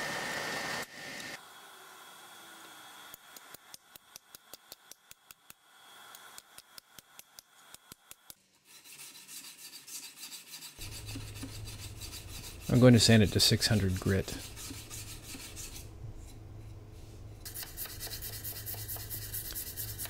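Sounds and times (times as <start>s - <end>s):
sanding stick rasping on steel: 8.6s - 15.9s, 17.4s - 20.0s.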